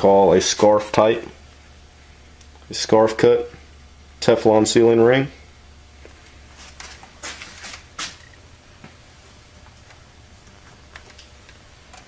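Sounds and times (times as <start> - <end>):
low room hum: 0.0 - 12.0
parts scraping and rustling: 6.5 - 8.4.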